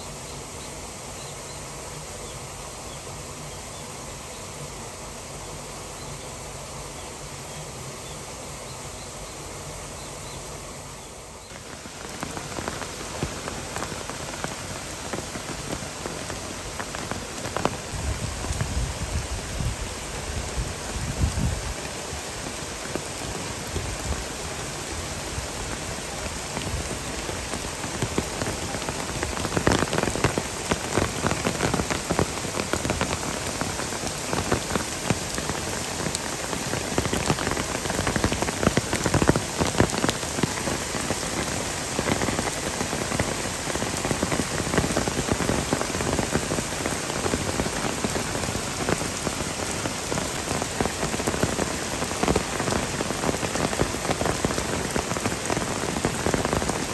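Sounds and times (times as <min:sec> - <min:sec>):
heavy rain downpour: 0:00.0 - 0:56.9.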